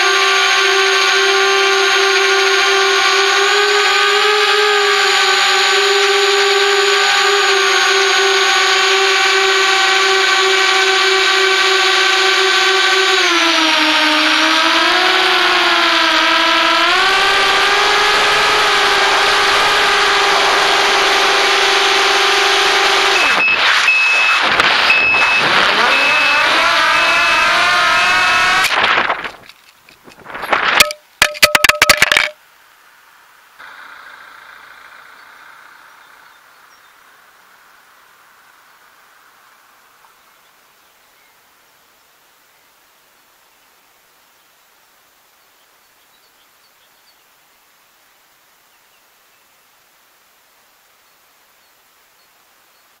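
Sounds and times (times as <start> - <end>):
drone motors whining: 0.0 - 32.3
drone crashing and tumbling: 17.5 - 32.4.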